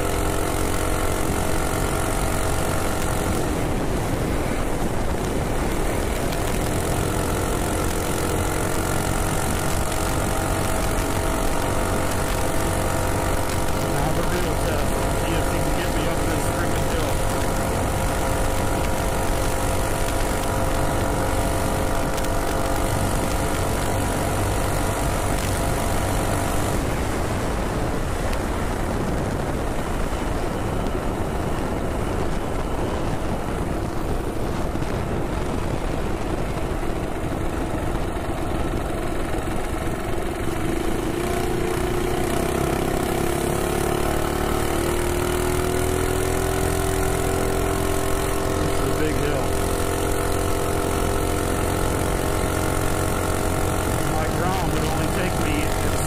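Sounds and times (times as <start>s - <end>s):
minibike engine running: 0.0s - 56.0s
rush of wind: 0.0s - 56.0s.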